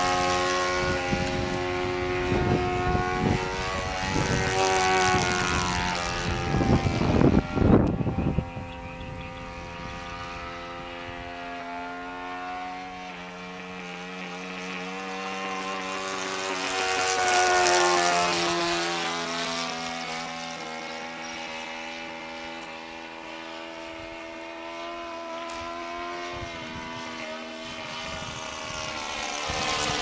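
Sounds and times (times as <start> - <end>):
wind buffeting microphone: 0.0 - 13.8, 22.1 - 30.0
model plane engine droning: 0.0 - 30.0.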